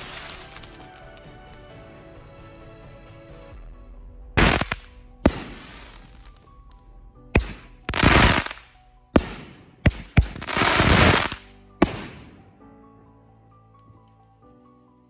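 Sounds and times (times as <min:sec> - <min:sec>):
firework hissing crackle: 0:00.0 - 0:01.0, 0:04.4 - 0:06.6, 0:07.4 - 0:12.4
background music: 0:00.0 - 0:15.0
firework bangs: 0:04.4 - 0:06.6, 0:07.4 - 0:12.6.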